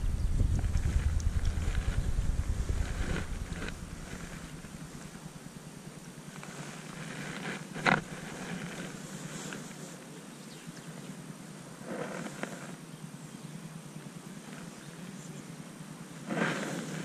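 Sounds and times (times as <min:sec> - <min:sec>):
wind rumble on microphone: 0:00.0 - 0:09.0
faint rustles and ticks: 0:00.0 - 0:12.9.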